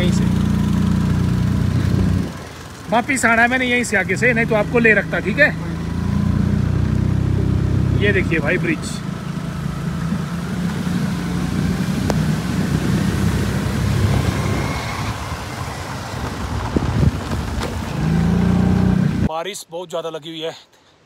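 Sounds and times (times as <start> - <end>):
scooter engine running: 0.0 - 19.3
tyres on wet road: 0.0 - 19.3
wind noise: 1.5 - 2.4, 10.0 - 19.3.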